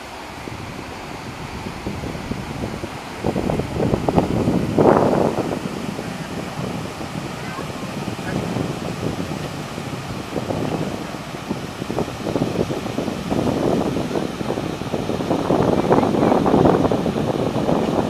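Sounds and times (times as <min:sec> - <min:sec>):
water gushing from pipe: 0:00.0 - 0:18.0.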